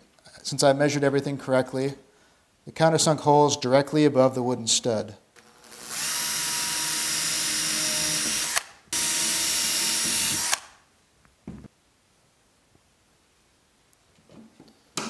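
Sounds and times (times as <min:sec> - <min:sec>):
cordless drill drilling into wood: 0:05.4 - 0:10.8
faint knock: 0:11.4 - 0:11.7.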